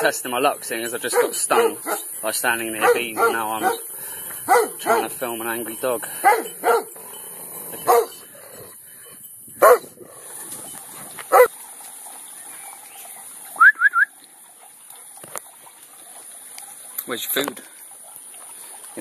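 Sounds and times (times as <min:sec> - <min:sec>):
dog barking: 0:01.1 - 0:02.1, 0:02.8 - 0:03.9, 0:04.5 - 0:05.1, 0:06.2 - 0:06.9, 0:07.8 - 0:08.2, 0:09.6 - 0:09.9.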